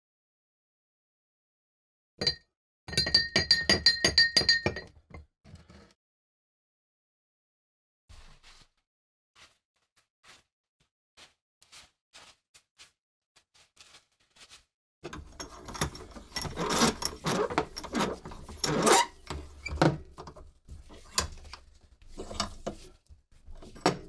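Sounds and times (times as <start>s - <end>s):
metal scraping on metal: 15.1s - 19.8s.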